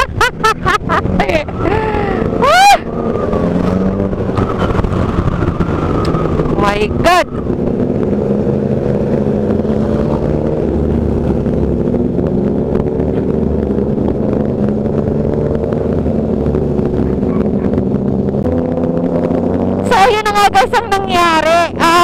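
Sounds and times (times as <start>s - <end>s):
motorcycle engine running: 0.0s - 22.0s.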